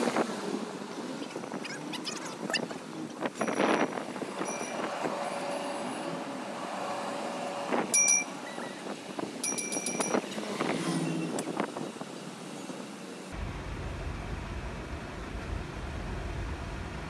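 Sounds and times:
wind buffeting microphone: 0.0s - 5.7s, 7.5s - 12.3s
tram electric whine: 2.8s - 17.0s.

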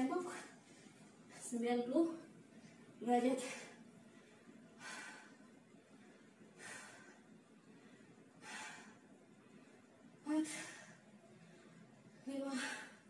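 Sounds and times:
woman breathing hard: 3.4s - 13.0s.

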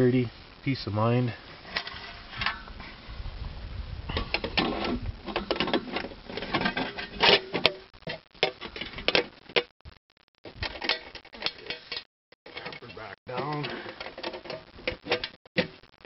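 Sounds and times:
clicks and rattles of handling: 4.1s - 9.7s, 10.4s - 15.8s.

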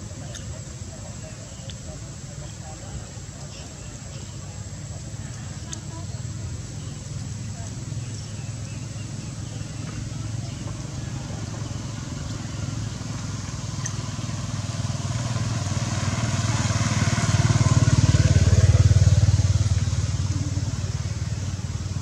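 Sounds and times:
vehicle engine passing by: 7.4s - 22.0s.

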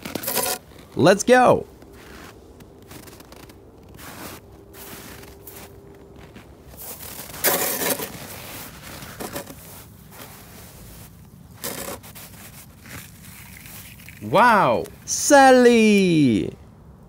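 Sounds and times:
toy cars scraping: 0.1s - 0.6s, 7.3s - 9.7s, 11.6s - 13.0s.

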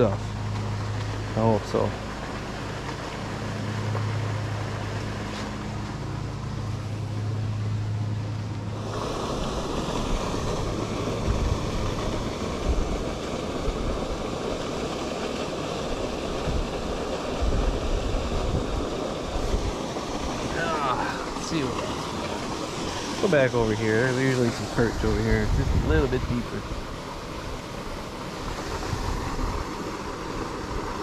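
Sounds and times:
steady low hum: 0.0s - 31.0s
wind buffeting microphone: 8.8s - 14.8s, 15.8s - 27.0s, 28.3s - 31.0s.

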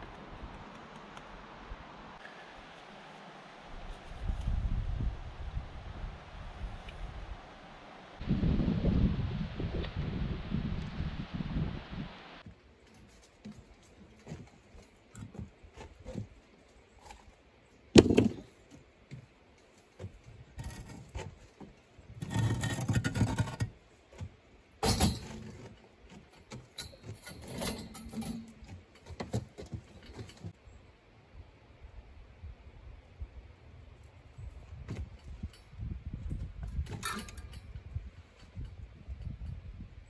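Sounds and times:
concrete block knocking: 18.0s - 18.4s
gritty block scrape: 20.0s - 30.6s.

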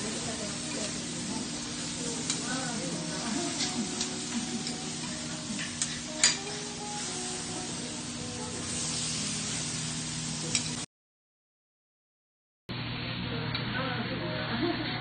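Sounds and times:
steak sizzling on griddle: 0.0s - 10.9s
metal spatula clicks on griddle: 2.2s - 2.5s, 5.6s - 6.6s, 10.5s - 10.8s.

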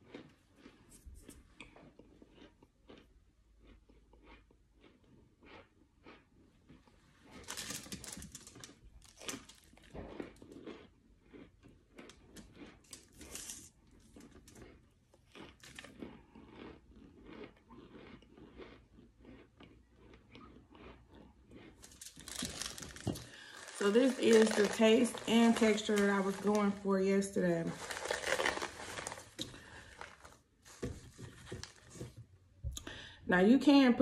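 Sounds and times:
crunchy food being chewed: 0.0s - 26.9s, 27.5s - 32.0s.

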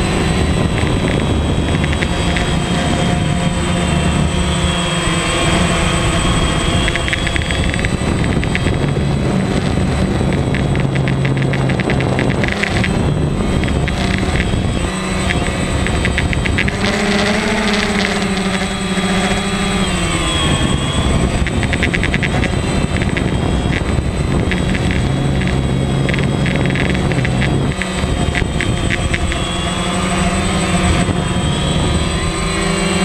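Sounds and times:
drone propellers buzzing: 0.0s - 33.0s.

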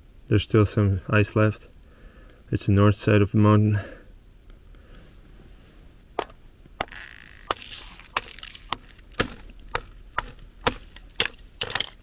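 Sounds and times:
trekking pole tapping thin ice: 6.2s - 12.0s.

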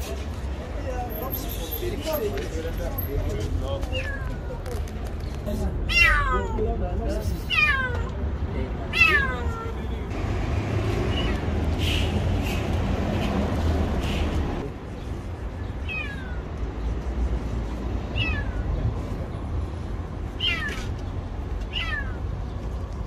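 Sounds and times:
kitten meowing: 3.9s - 4.6s, 5.9s - 6.6s, 7.5s - 8.2s, 8.9s - 9.8s, 11.1s - 11.4s, 15.8s - 16.5s, 18.1s - 18.8s, 20.4s - 20.9s, 21.6s - 22.2s.

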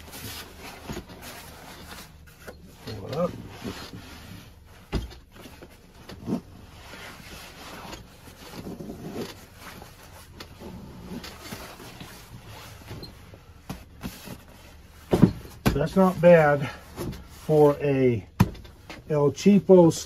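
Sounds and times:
nylon fabric rustling: 0.0s - 17.8s
straps rubbing: 0.0s - 17.8s.

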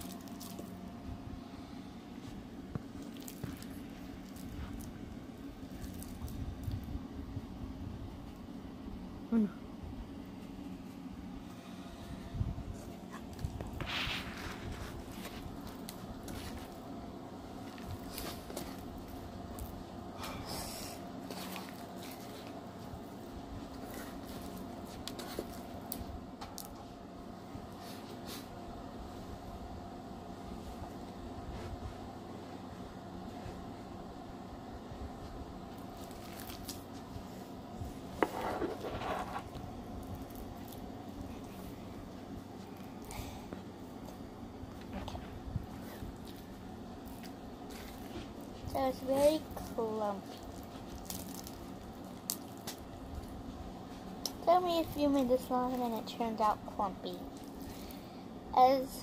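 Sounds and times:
slime squishing with crackles: 0.0s - 0.9s, 2.2s - 7.1s, 12.8s - 26.9s, 35.7s - 59.0s
low steady hum: 0.0s - 59.0s
hissy rustle: 12.7s - 16.7s
hands kneading sticky slime: 45.6s - 56.2s.

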